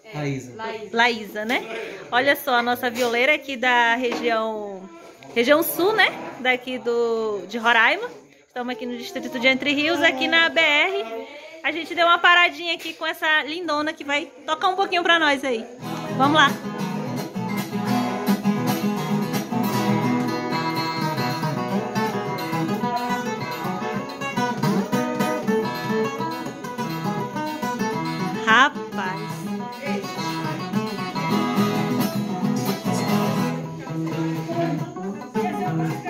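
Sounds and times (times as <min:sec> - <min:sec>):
plucked and strummed guitar: 0:15.8 - 0:36.0.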